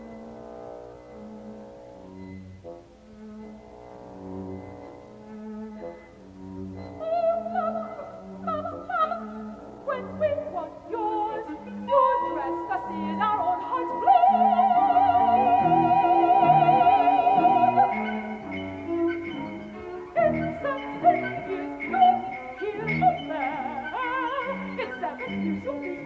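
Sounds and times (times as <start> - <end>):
small chamber ensemble: 0.0 - 26.0
soprano singing: 6.8 - 26.0.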